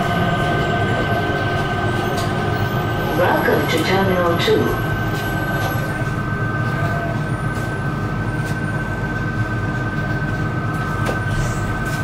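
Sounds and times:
low rumble: 0:00.0 - 0:07.2.

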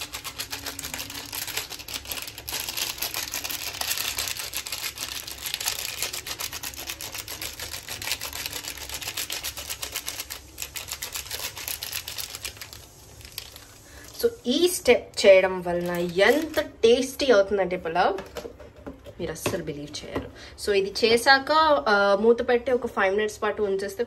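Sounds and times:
plastic packet crinkling: 0:00.0 - 0:14.5, 0:15.1 - 0:17.2.

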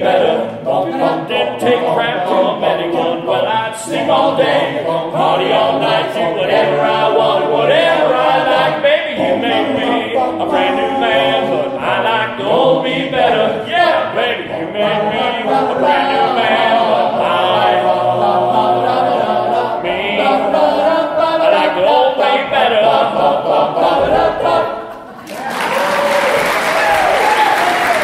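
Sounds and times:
men's chorus singing in harmony: 0:00.0 - 0:25.1
audience applause: 0:25.1 - 0:28.0.

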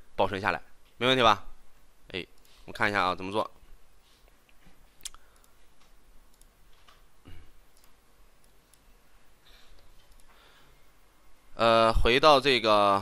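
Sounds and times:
computer mouse clicks: 0:04.2 - 0:07.1, 0:07.7 - 0:08.9, 0:09.7 - 0:10.4.

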